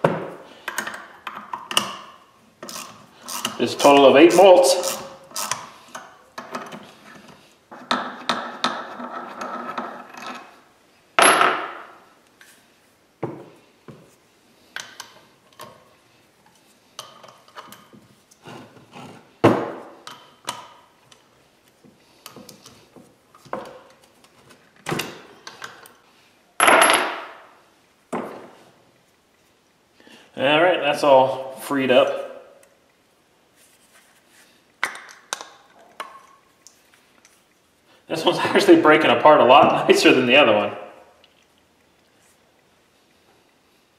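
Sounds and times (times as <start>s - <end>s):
ratchet clicking: 2.7s - 3.6s, 4.8s - 5.6s.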